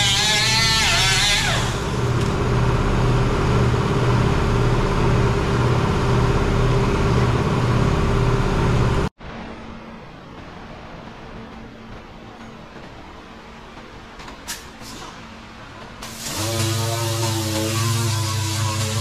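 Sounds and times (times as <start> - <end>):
cut-off wheel grinding steel: 0.0 - 2.6, 16.0 - 19.0
throbbing low machine hum: 0.7 - 9.1, 16.2 - 19.0.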